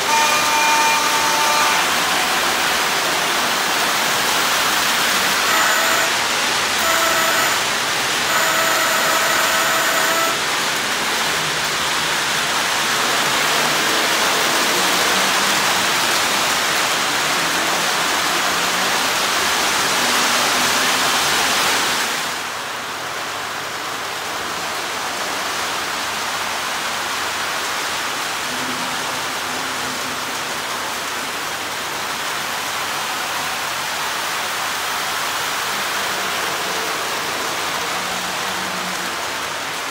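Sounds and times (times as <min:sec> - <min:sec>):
train horn blasts: 0:00.0 - 0:03.6, 0:05.2 - 0:10.6
model train wheels and motors: 0:00.0 - 0:21.7.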